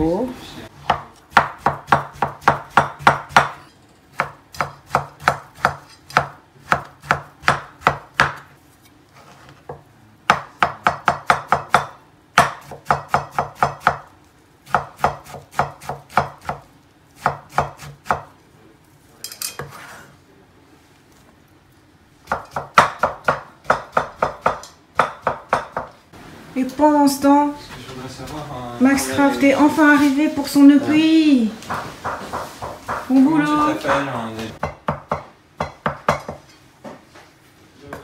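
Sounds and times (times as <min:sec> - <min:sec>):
cleaver chopping on wooden board: 0:00.9 - 0:03.6, 0:04.2 - 0:08.5, 0:14.7 - 0:16.6.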